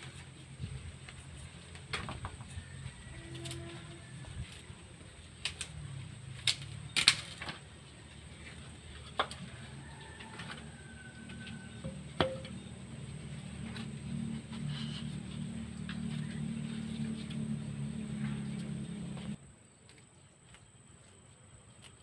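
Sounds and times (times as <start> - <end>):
wooden boards knocking: 11.9 - 12.6.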